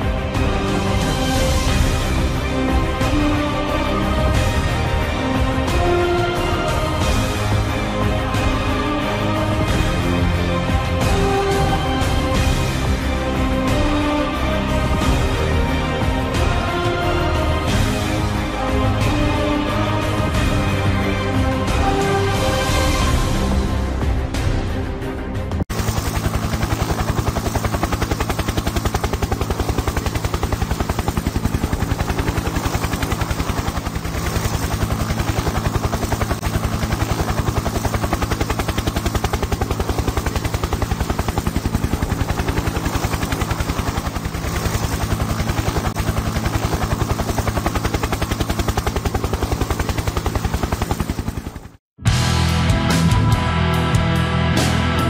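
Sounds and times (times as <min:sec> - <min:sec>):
helicopter rotor chop: 0:00.0 - 0:23.6, 0:25.7 - 0:51.8.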